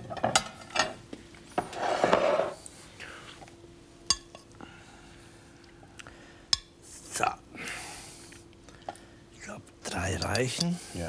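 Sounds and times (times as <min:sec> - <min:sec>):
spoon scraping rustle: 0:01.6 - 0:02.6
metal clinking on plate: 0:04.1 - 0:04.4.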